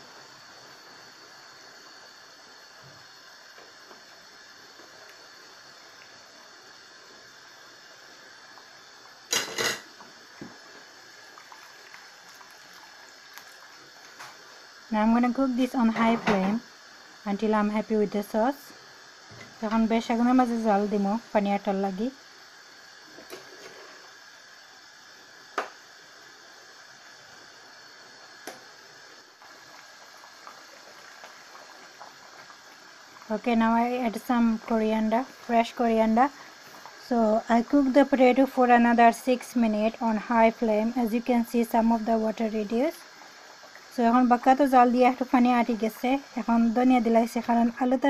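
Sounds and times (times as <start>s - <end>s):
pot hissing on stove: 0.0s - 48.0s.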